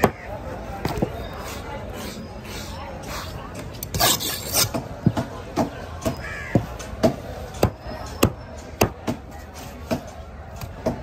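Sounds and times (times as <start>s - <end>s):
crow cawing: 6.1s - 6.7s.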